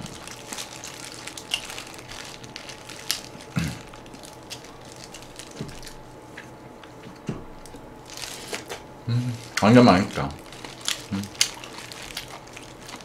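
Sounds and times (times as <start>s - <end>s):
person chewing: 10.4s - 13.0s.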